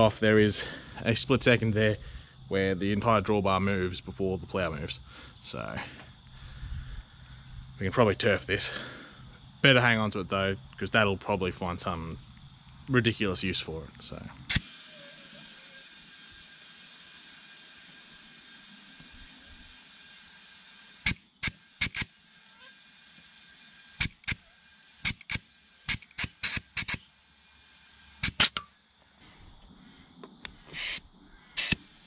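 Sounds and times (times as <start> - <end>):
air hissing from tyre inflator: 14.5 - 28.8, 30.5 - 32.0
valve chuck clicks: 21.0 - 22.1, 24.0 - 27.1, 31.6 - 32.0.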